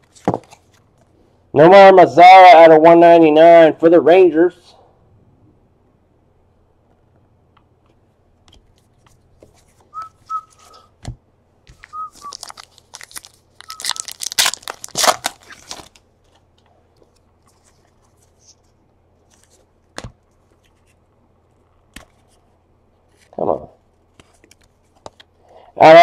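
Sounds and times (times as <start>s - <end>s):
cards being handled: 0.0s - 1.1s, 7.9s - 10.8s, 11.7s - 23.4s, 24.0s - 25.3s
person whistling: 9.9s - 10.9s, 11.9s - 12.5s, 13.6s - 14.1s
foil wrapper crinkling and tearing: 11.8s - 16.0s.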